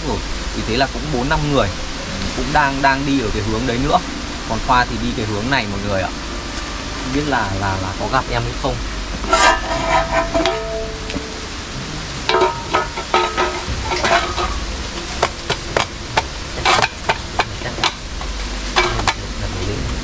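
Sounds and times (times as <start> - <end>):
footsteps on rock and leaves: 12.9 - 18.0.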